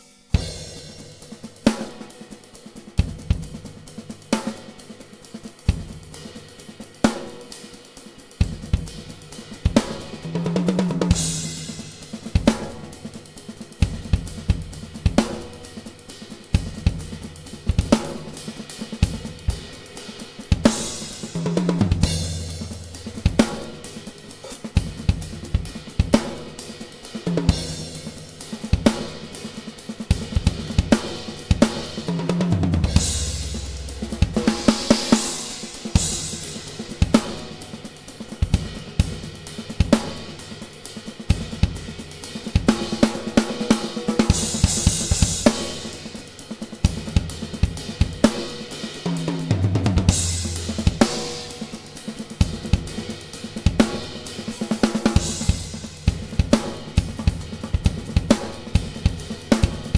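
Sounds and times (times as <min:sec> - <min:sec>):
hi-hat and cymbal playing: 0:00.0 - 0:59.9
bass drum and snare accents: 0:08.4 - 0:59.9
cymbal crash: 0:32.8 - 0:37.4.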